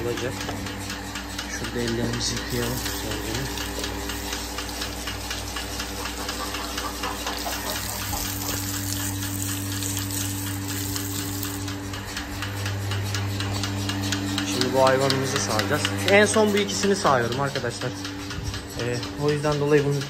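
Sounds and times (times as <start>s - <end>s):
vacuum pump motor humming: 0.0s - 20.0s
water pouring from a hose: 7.9s - 11.6s.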